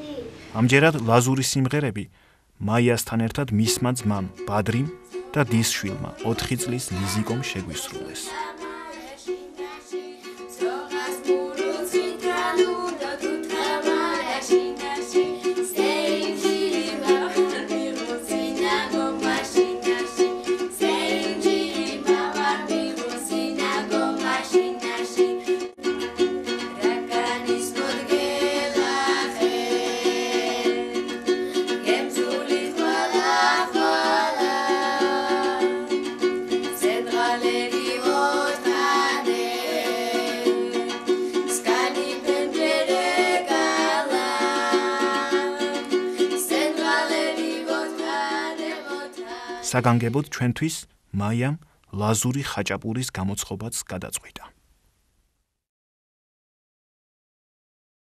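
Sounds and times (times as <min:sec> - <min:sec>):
plucked lute strumming: 0:03.6 - 0:50.2
woman and children singing: 0:05.1 - 0:25.6, 0:26.8 - 0:36.0, 0:36.6 - 0:50.0.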